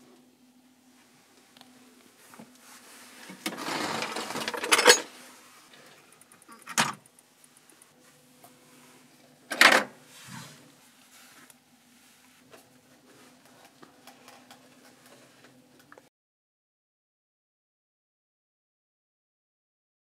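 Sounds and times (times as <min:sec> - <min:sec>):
metal tools rattling: 0:03.8 - 0:05.1.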